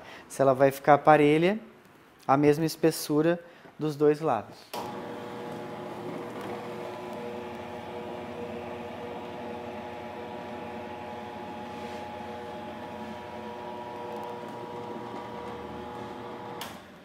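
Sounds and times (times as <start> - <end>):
dough machine motor humming: 4.8 - 17.0.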